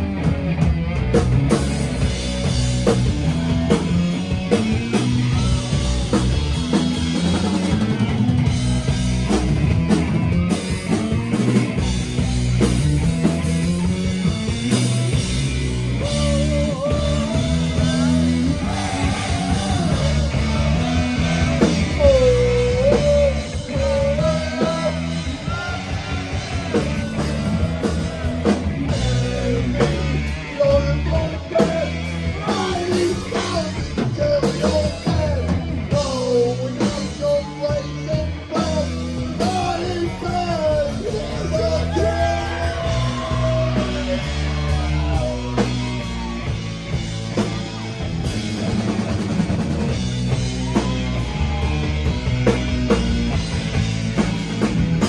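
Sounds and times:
drum kit: 0:00.0 - 0:55.0
electric guitars: 0:00.0 - 0:55.0
singer's lead vocal: 0:15.9 - 0:46.3.

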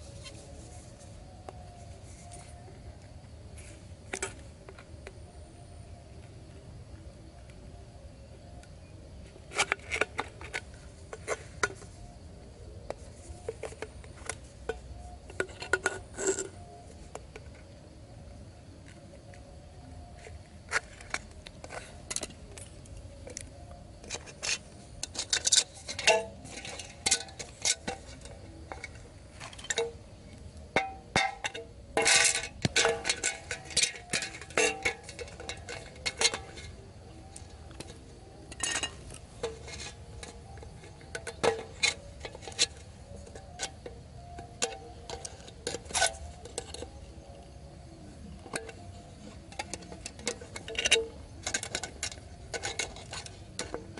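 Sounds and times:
metallic clicks and crinkles of can: 0:09.5 - 0:12.0, 0:12.9 - 0:17.8, 0:20.2 - 0:30.0, 0:30.7 - 0:47.4, 0:48.3 - 0:53.9.

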